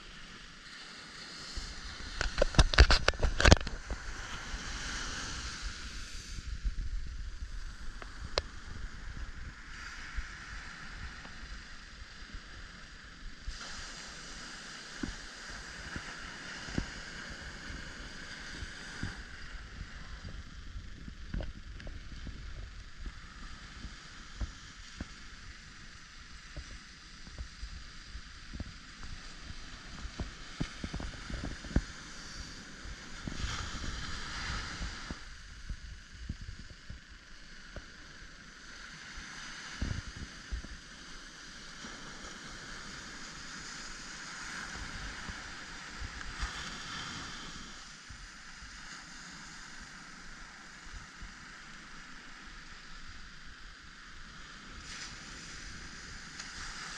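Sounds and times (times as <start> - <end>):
surf washing up sandy shore: 0.0 - 56.9
wind buffeting microphone: 1.6 - 12.7, 15.8 - 37.1, 39.8 - 40.8.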